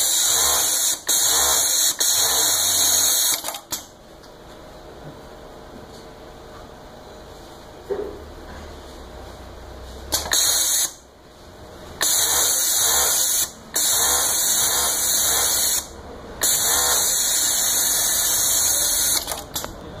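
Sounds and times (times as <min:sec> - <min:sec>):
coverstitch sewing machine running: 0:00.0 - 0:03.6, 0:12.0 - 0:19.7.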